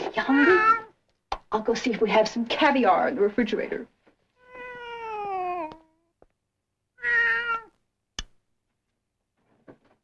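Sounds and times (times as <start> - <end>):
cat meowing: 0.4 - 0.9, 4.4 - 6.0, 7.0 - 7.8.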